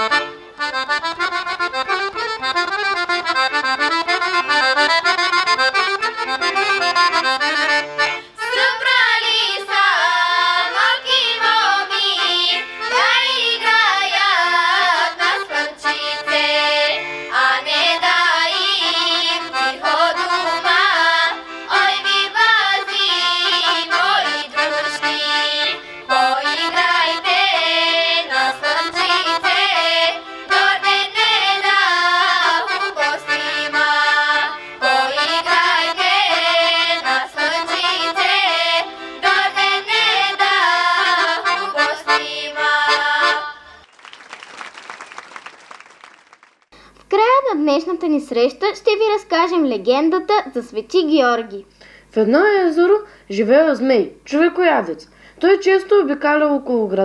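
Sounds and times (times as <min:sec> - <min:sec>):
accordion: 0:00.0 - 0:43.8
girls' choir singing: 0:08.4 - 0:43.8.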